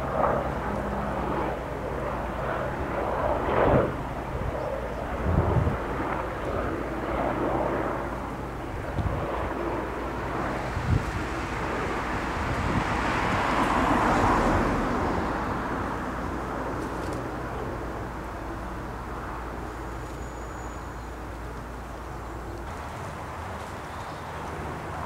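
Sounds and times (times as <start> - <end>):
steady low rumble: 0.0 - 13.0
vehicle passing: 10.6 - 17.0
faint high whistle: 19.9 - 21.2.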